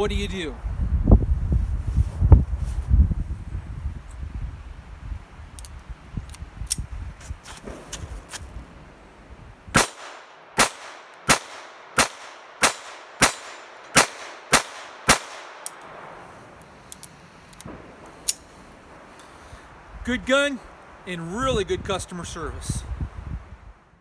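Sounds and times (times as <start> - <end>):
pistol shots: 9.8 - 16.2.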